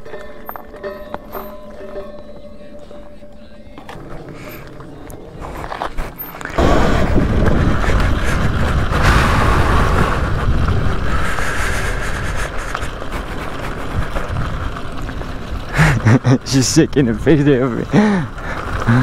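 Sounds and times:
electric dirt bike rumble: 0:03.8 - 0:19.0
wind buffeting microphone: 0:04.0 - 0:16.4.

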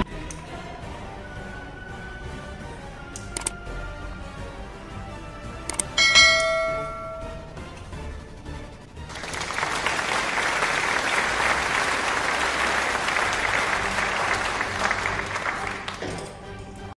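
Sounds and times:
crowd applause: 0:09.0 - 0:16.4.

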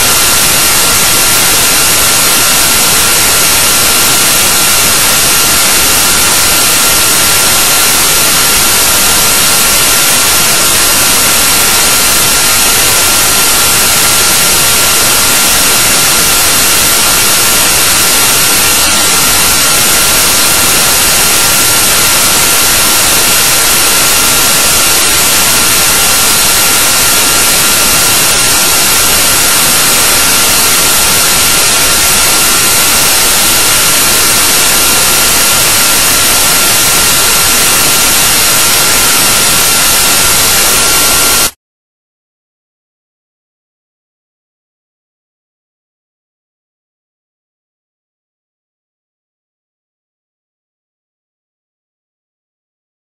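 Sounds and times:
loud static hiss: 0:00.0 - 0:41.6.

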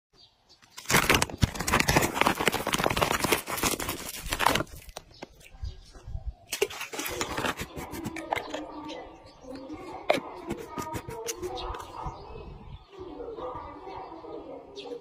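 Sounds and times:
handling noises: 0:00.6 - 0:08.8
plastic packet crinkling: 0:00.8 - 0:05.2.

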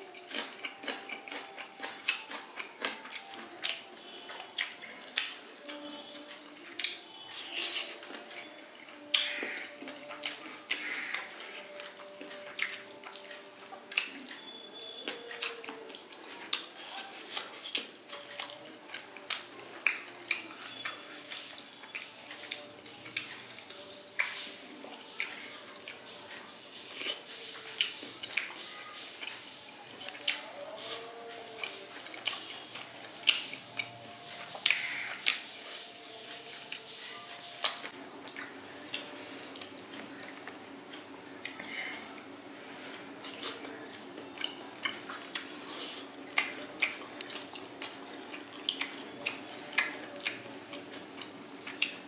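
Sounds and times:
lip smacks and chewing: 0:00.2 - 0:05.8, 0:30.1 - 0:36.9, 0:44.4 - 0:50.4.

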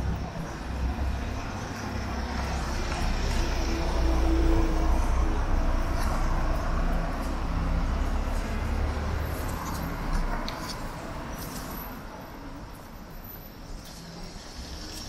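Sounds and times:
low traffic rumble: 0:00.0 - 0:15.0.

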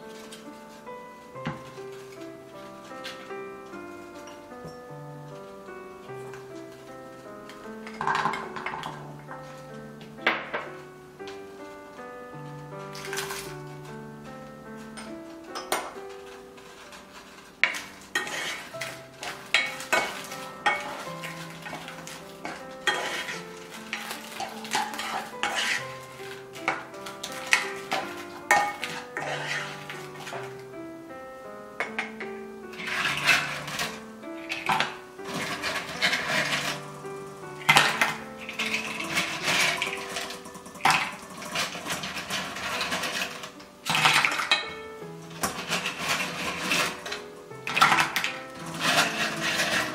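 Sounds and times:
light background music: 0:00.0 - 0:49.9
spoon scraping pan: 0:14.8 - 0:30.6, 0:32.7 - 0:49.9
garlic sizzling in oil: 0:16.7 - 0:30.6.

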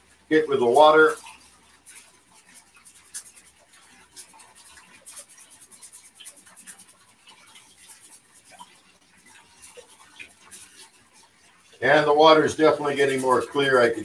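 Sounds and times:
tap running water: 0:00.0 - 0:14.0
wet rice swishing in strainer: 0:00.0 - 0:14.0.

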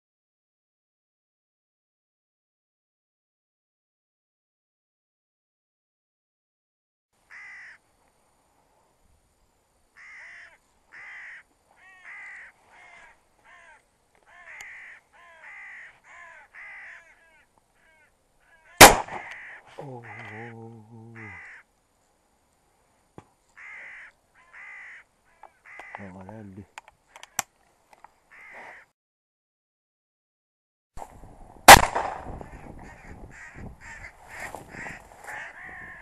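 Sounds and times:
crows cawing: 0:07.3 - 0:07.8, 0:10.0 - 0:21.7, 0:23.5 - 0:26.4, 0:28.3 - 0:28.9, 0:32.3 - 0:36.0
low drawn-out voice-like call: 0:17.0 - 0:21.6
shotgun blast: 0:18.8 - 0:19.4, 0:31.7 - 0:32.4.

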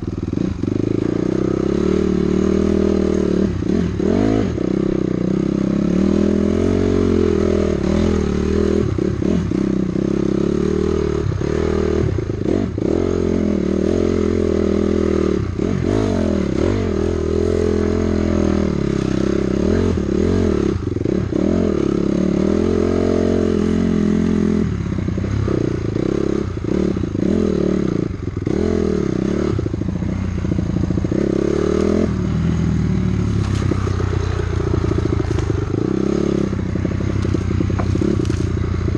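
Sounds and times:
dirt bike engine revving: 0:00.0 - 0:38.9
bike rattling: 0:29.6 - 0:38.9.

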